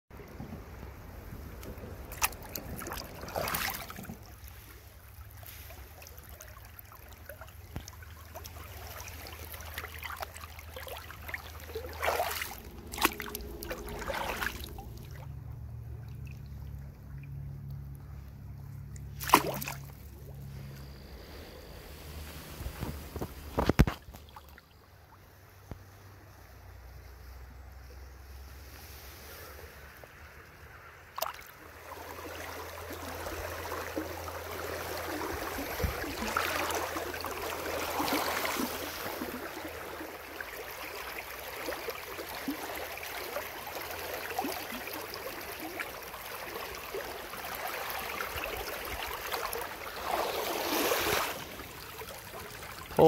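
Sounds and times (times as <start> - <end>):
river water trickling: 0.1 - 53.0
wind rumble on microphone: 20.9 - 24.2, 35.3 - 36.4.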